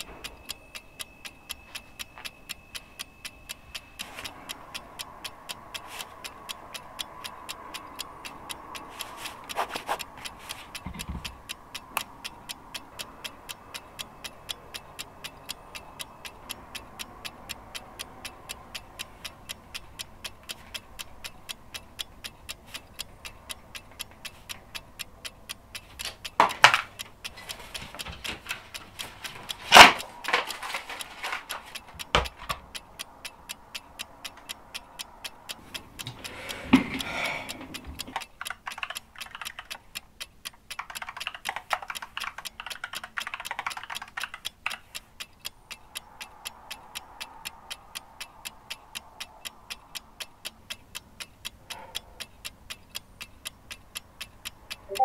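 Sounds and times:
fast clock-like ticking: 0.0 - 55.0
keyboard typing: 38.0 - 45.0.

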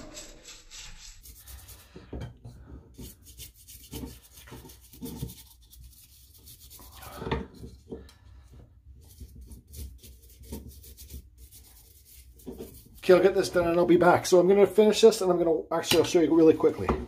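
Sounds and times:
brush scrubbing wood surface: 0.0 - 2.0, 2.9 - 7.8, 9.0 - 13.8.

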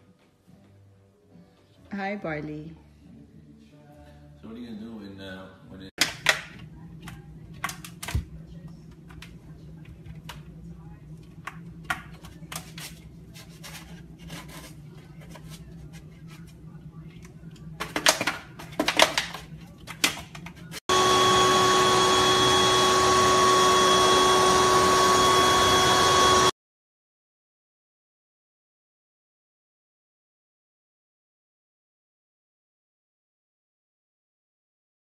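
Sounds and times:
electric motor whirring: 20.9 - 26.5.

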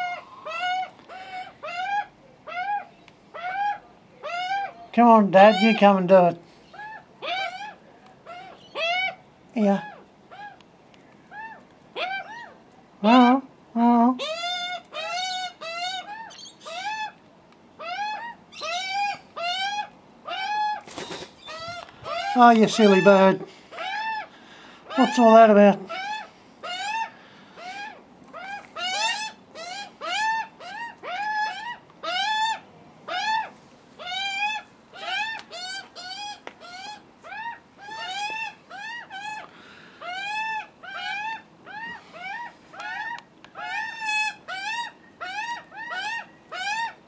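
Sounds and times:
young magpies screaming begging calls: 0.0 - 10.6, 11.3 - 13.5, 14.2 - 17.2, 17.8 - 47.0
wings flapping: 20.7 - 22.8.

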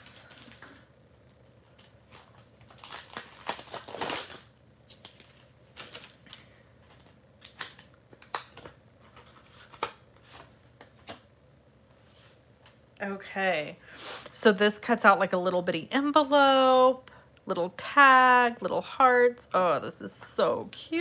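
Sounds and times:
plastic packaging crinkling: 0.2 - 11.2.

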